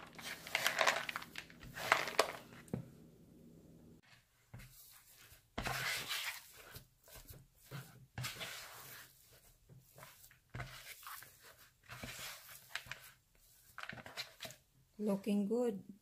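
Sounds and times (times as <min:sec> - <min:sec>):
spatula scraping dough in bowl: 0:04.0 - 0:14.7.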